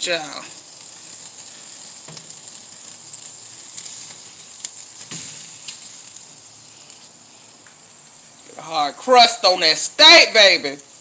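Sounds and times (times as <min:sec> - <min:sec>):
meat sizzling on a grill: 0:00.0 - 0:11.0
pops and crackles: 0:00.5 - 0:08.5.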